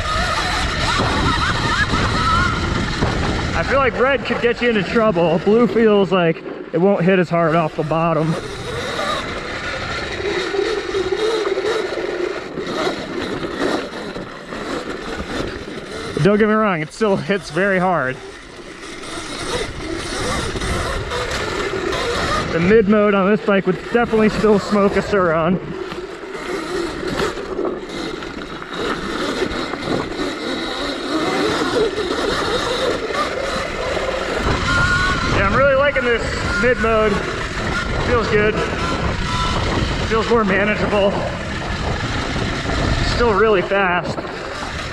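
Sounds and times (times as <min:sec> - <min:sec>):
wind on microphone: 0:00.0 - 0:06.0, 0:07.8 - 0:44.9
electric motorbike motor whining: 0:00.0 - 0:44.9
tyres rushing on dirt trail: 0:00.0 - 0:44.9.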